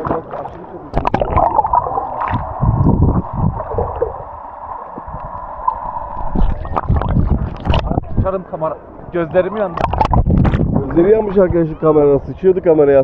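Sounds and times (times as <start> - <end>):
underwater bubbles gurgling: 0.0 - 11.0
dull low thumps: 1.0 - 4.3, 5.0 - 8.4, 9.8 - 11.7.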